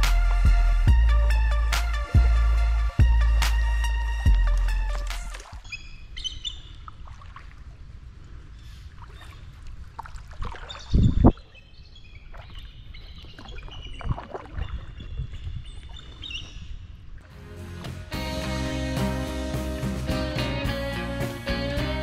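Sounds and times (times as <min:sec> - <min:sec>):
small birds chirping: 0:05.6 - 0:06.9, 0:10.6 - 0:17.0.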